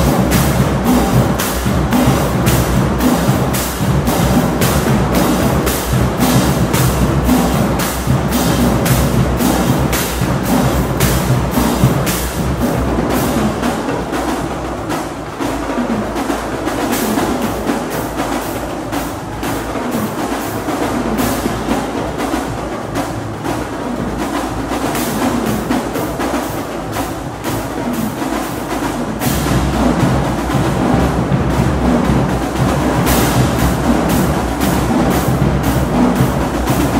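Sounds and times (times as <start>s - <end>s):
bass drums: 0.0s - 36.9s
snare drums: 0.0s - 36.9s.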